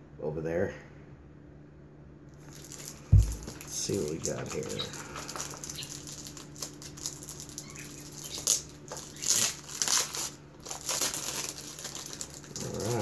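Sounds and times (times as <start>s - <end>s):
faint steady hum: 0.0s - 13.0s
packaging crinkling and tearing: 2.4s - 13.0s.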